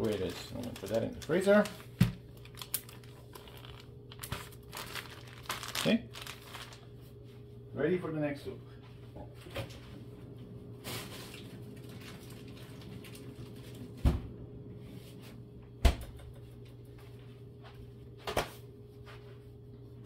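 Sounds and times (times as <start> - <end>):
steady low hum: 0.0 - 20.0
bag handling: 2.5 - 6.8.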